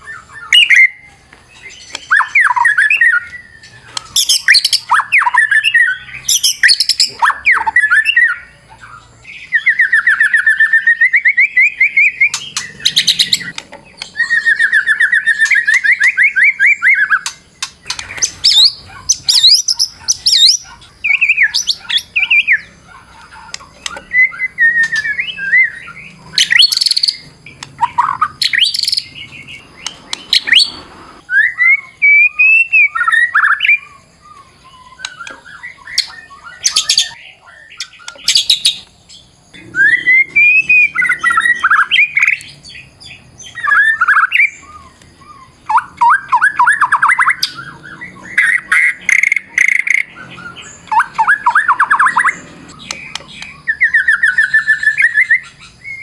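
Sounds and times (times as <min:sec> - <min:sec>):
songbird singing whistled phrases: 0:00.0 - 0:56.0
bird rapid trills: 0:02.0 - 0:31.2
harsh scratchy bird notes: 0:39.6 - 0:42.6.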